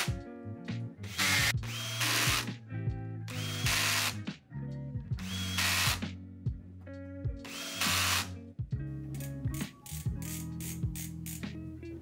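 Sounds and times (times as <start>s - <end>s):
music with bass line: 0.0s - 12.0s
cordless drill whirring: 1.1s - 2.5s, 3.3s - 4.2s, 5.2s - 6.0s, 7.4s - 8.3s.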